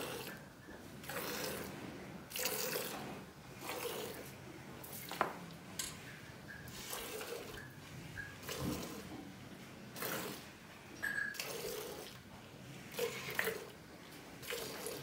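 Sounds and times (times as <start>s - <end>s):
milk squirting into steel pail: 1.0s - 1.7s, 2.3s - 3.0s, 14.4s - 15.0s.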